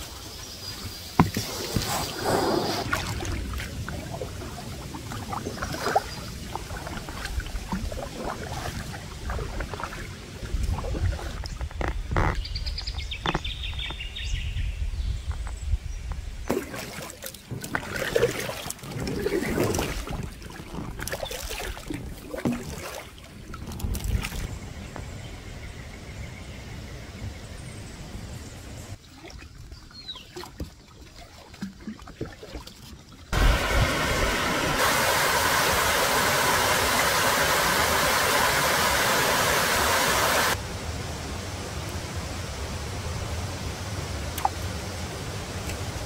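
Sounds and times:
paddle splashing in water: 0.7s - 12.4s, 16.5s - 24.5s, 29.0s - 40.6s.

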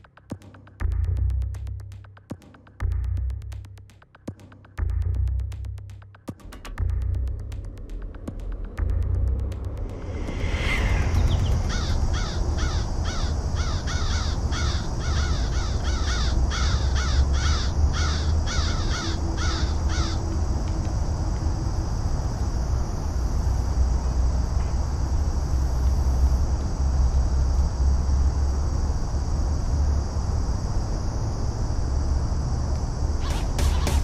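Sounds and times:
low rumble: 6.6s - 27.6s
crows cawing: 11.7s - 20.3s.

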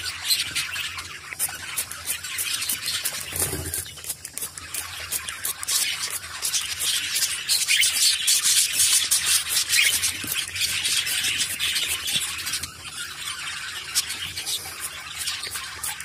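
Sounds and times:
bird flapping wet wings: 1.4s - 7.8s.

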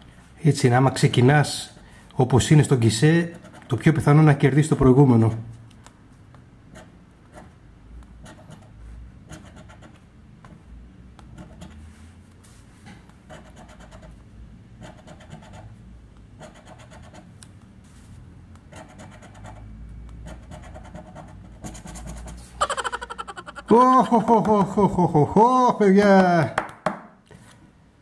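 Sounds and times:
coin scraping scratch card: 3.3s - 3.8s, 13.3s - 14.1s, 16.4s - 17.3s, 20.3s - 22.5s.

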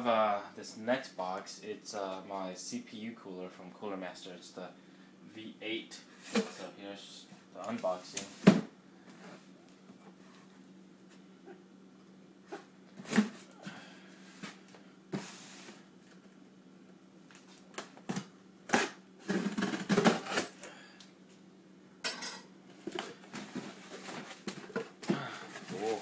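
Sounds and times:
cardboard rustling: 23.4s - 26.0s.

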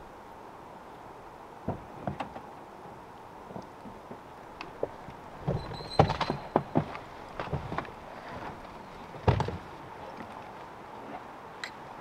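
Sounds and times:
knocks and clunks: 1.6s - 2.4s, 4.8s - 7.9s, 9.2s - 9.6s
high squeak: 5.6s - 6.5s.

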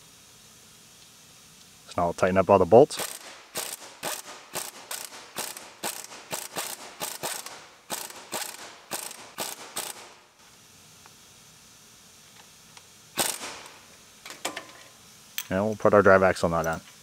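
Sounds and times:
hand ratchet clicking: 3.0s - 10.1s.

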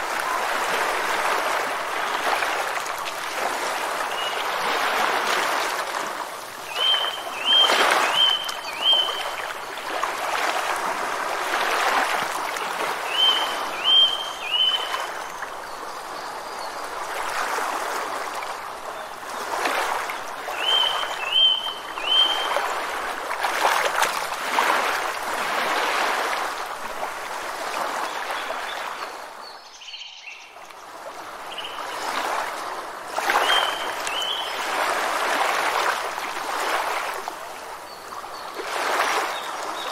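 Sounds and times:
rushing water: 0.0s - 29.8s, 30.4s - 39.9s
bird chirping: 6.7s - 9.4s, 29.4s - 30.6s.

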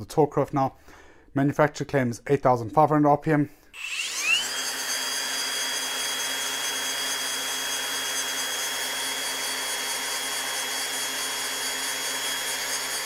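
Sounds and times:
angle grinder high whine: 3.8s - 13.0s.

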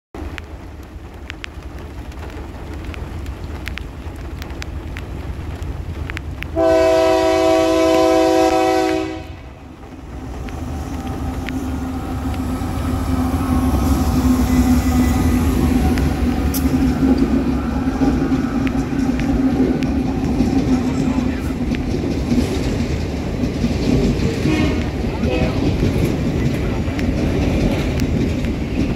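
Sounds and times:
diesel locomotive engines droning: 0.2s - 28.9s
locomotive horn blast: 6.6s - 9.6s, 24.4s - 25.8s
wheel clicks over rail joints: 15.7s - 28.9s.

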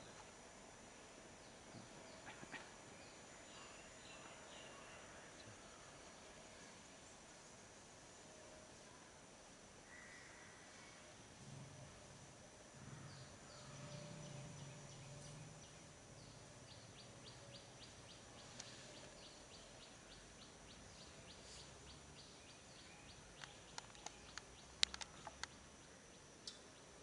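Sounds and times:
small bird chirping: 12.9s - 27.0s
sharp clicks and light taps: 23.4s - 25.6s.

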